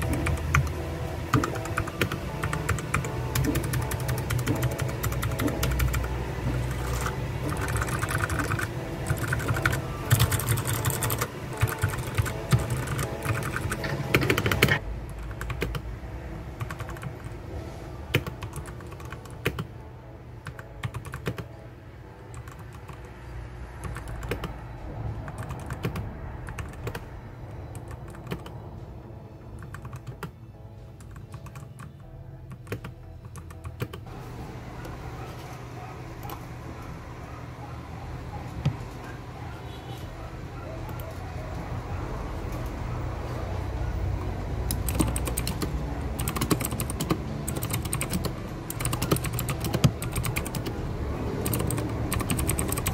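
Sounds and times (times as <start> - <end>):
mechanical keyboard typing: 0.0 - 15.9, 16.6 - 17.4, 18.1 - 19.7, 20.4 - 21.5, 22.3 - 23.1, 23.8 - 24.6, 25.3 - 27.1, 27.7 - 28.6, 29.6 - 30.4, 31.0 - 34.1, 44.6 - 52.9.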